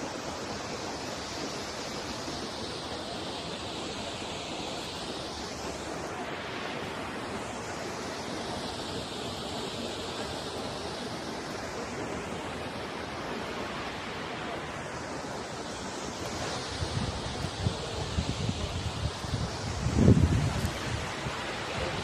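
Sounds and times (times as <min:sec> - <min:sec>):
waterfall rushing over rock: 0:00.0 - 0:22.0
wind gusting on microphone: 0:16.2 - 0:22.0.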